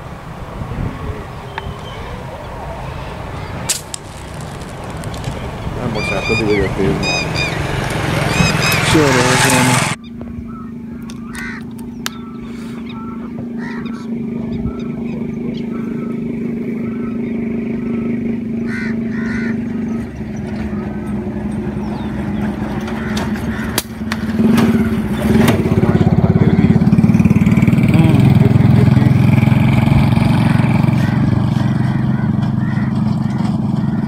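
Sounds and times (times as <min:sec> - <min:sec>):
engine running: 0:00.0 - 0:34.0
bird chirps: 0:01.4 - 0:09.2, 0:09.9 - 0:23.8.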